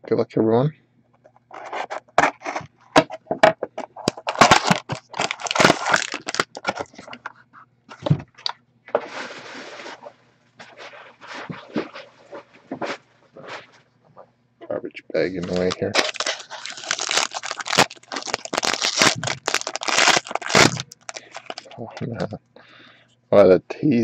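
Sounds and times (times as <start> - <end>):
plastic shrink wrap crinkling: 3.8 - 7.3, 15.3 - 22.2.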